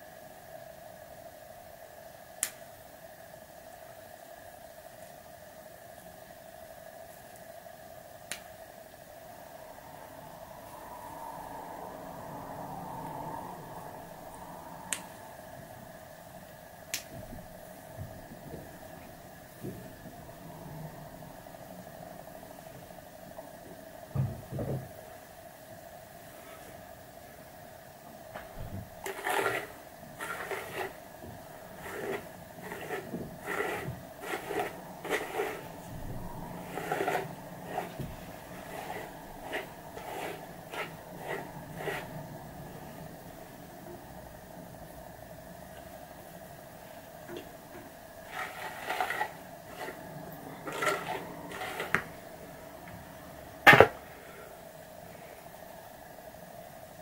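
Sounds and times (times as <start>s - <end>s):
faint steady hum: 0.0s - 57.0s
hairbrush strokes through hair: 29.0s - 42.2s, 48.3s - 50.1s, 50.7s - 52.1s.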